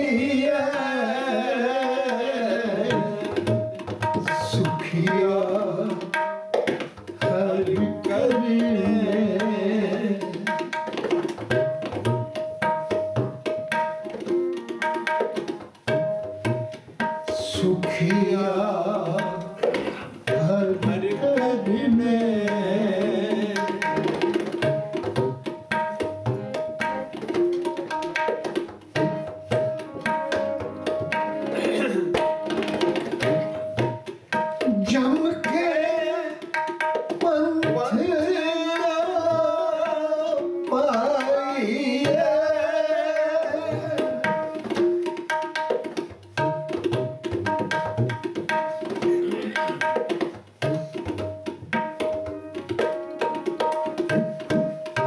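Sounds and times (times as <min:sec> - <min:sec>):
man singing: 0:00.0 - 0:06.2, 0:07.2 - 0:10.7, 0:17.4 - 0:24.2, 0:34.6 - 0:44.6
tabla playing: 0:00.0 - 0:55.0
harmonium and keyboard notes: 0:29.4 - 0:32.8.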